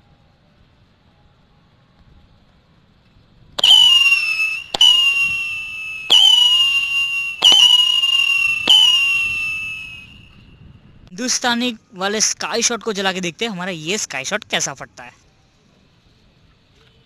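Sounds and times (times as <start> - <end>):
firecracker pops: 3.6 - 5.5, 7.4 - 9.0
shrill firework whistle: 3.6 - 10.6.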